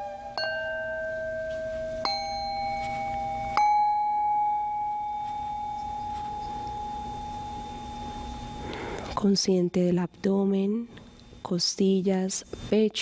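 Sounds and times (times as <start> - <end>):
singing bowl struck with mallet: 0.0 - 8.6.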